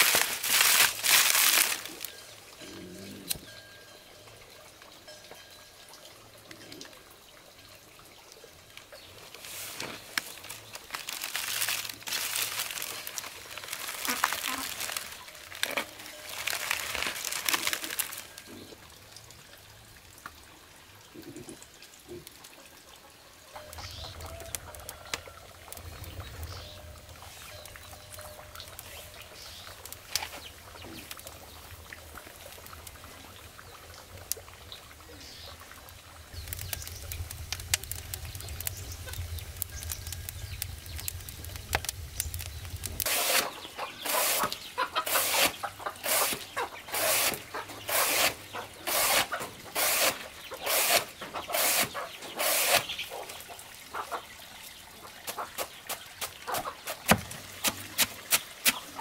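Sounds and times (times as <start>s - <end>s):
low steady hum with ticks: 36.4s - 43.1s.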